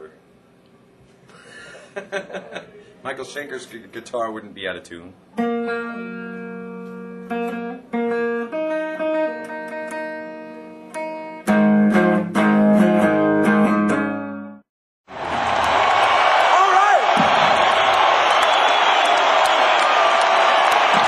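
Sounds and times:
electric guitar chords: 5.3 - 14.6.

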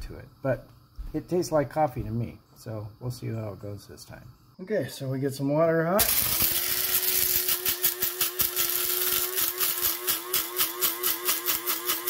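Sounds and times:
coffee grinder motor humming: 6.0 - 12.0.

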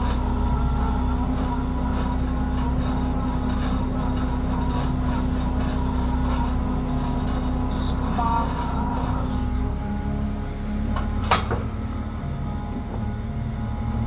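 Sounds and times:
boat engine and machinery droning: 0.0 - 14.0.

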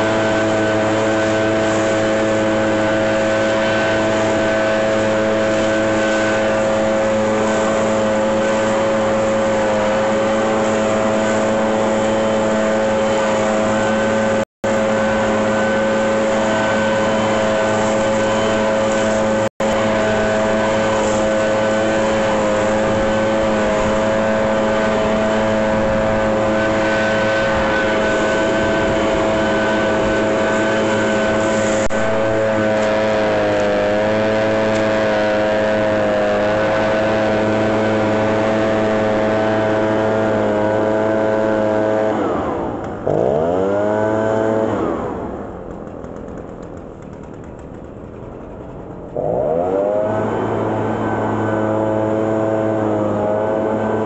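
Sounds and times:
leaf blower engine: 0.0 - 54.0
rush of air from blower: 0.0 - 54.0.

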